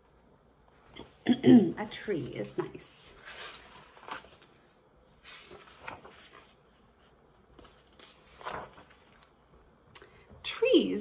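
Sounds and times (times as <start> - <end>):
paper rustling page turning: 2.0 - 9.6.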